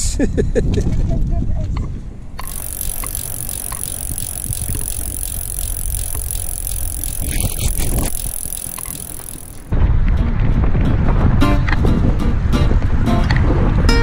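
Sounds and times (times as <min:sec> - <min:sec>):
bicycle freewheel ticking: 0:02.4 - 0:09.7.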